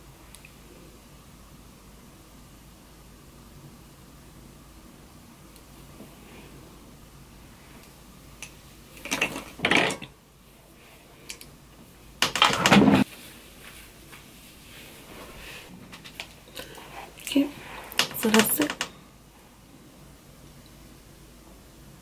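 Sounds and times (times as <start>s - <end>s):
faint room hiss: 0.0s - 22.0s
person moving scuffing: 13.1s - 15.7s.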